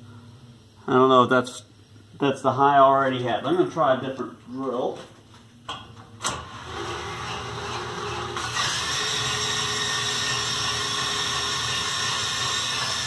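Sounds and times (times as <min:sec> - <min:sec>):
power drill spinning a motor: 0:06.5 - 0:13.0.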